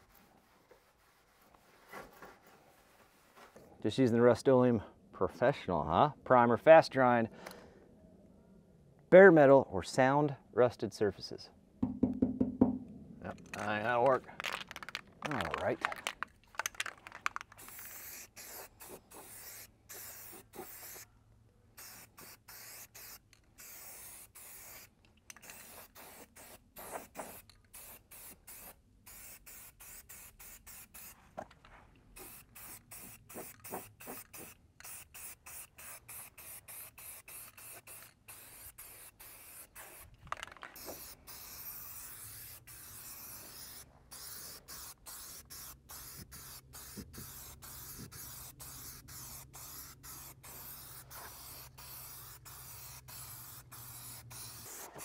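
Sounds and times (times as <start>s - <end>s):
aerosol spray can hissing: 14.4s - 21.1s, 21.8s - 31.2s, 32.2s - 40.1s, 40.7s - 55.0s.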